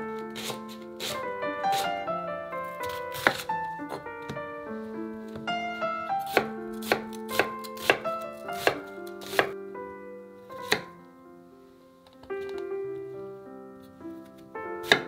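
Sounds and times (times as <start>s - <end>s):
knife cutting on wooden board: 0.4s - 1.9s, 2.8s - 3.5s, 6.3s - 8.0s, 8.6s - 9.5s.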